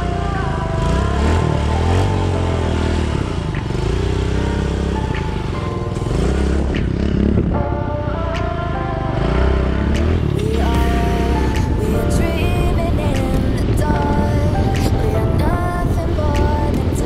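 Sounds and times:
background music: 0:00.0 - 0:17.0
small motorbike engine revving: 0:00.7 - 0:07.5.

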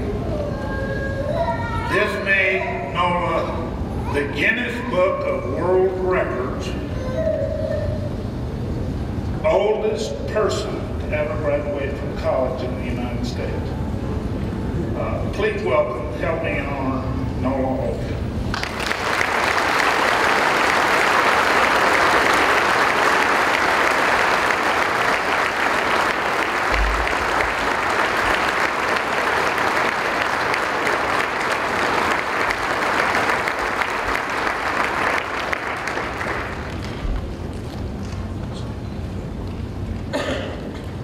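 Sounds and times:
large audience applauding: 0:18.5 - 0:37.3.

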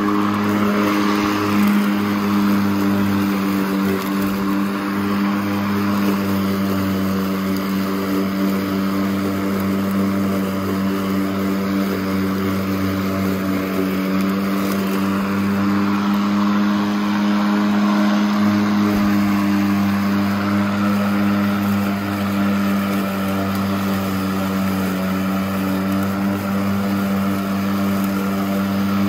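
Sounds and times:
electric lawn mower cutting grass: 0:00.0 - 0:29.0.

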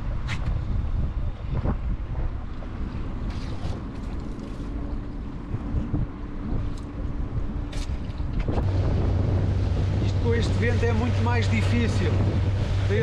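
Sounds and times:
wind buffeting microphone: 0:00.0 - 0:13.0
outboard motor running: 0:08.5 - 0:13.0.

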